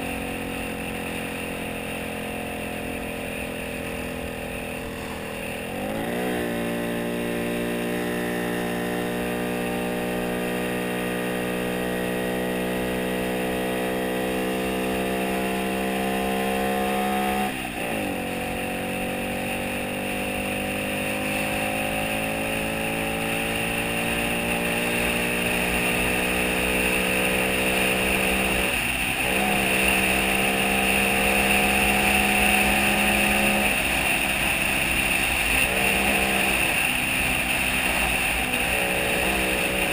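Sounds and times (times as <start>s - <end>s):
road hiss: 0.0s - 7.7s, 23.7s - 39.9s
car engine accelerating: 0.0s - 39.9s
wind: 0.0s - 39.9s.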